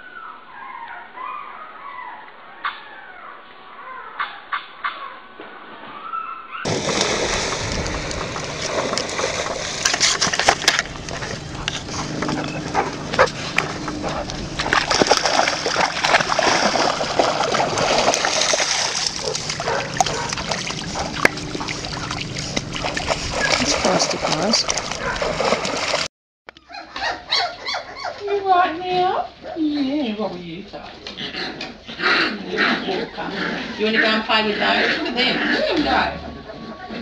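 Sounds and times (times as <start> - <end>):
steady rushing noise: 6.7 - 17.9
puppies splashing through water: 6.7 - 26.1.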